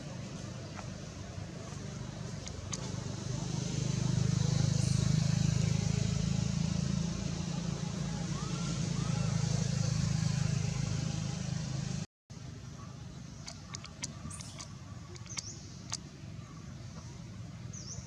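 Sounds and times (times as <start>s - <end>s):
vehicle engine running: 0.0s - 12.1s.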